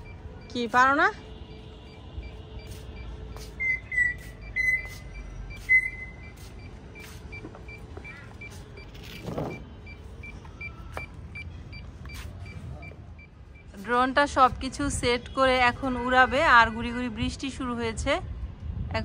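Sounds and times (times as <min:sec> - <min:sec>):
short high electronic beeps: 0:02.3 - 0:09.3.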